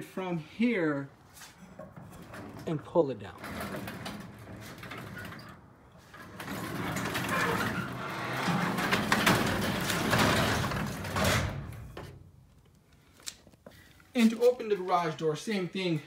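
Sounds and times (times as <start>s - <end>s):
garage door rollers rumbling: 1.8s - 12.1s.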